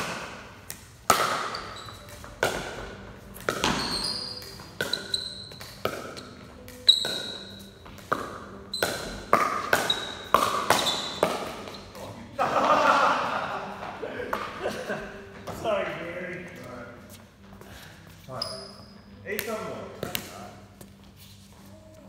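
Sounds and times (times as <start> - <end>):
paddles hitting plastic ball: 0.0 - 11.9, 19.4 - 20.4
ball bouncing on concrete: 0.0 - 12.0, 19.3 - 20.9
high-pitched shoe squeaks: 1.4 - 2.4, 3.5 - 8.0, 8.6 - 12.0, 18.3 - 19.2.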